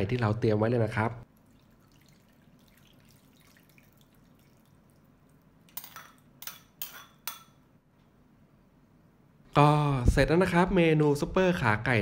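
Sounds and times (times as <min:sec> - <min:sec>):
metal ladle clinking glass bowl: 0:05.7 - 0:07.6.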